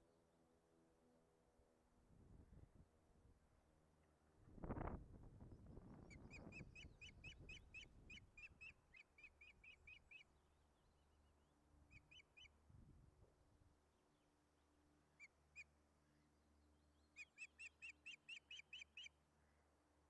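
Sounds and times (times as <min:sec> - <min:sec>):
osprey calling: 0:06.0 - 0:10.3, 0:11.9 - 0:12.6, 0:15.1 - 0:15.7, 0:17.0 - 0:19.2.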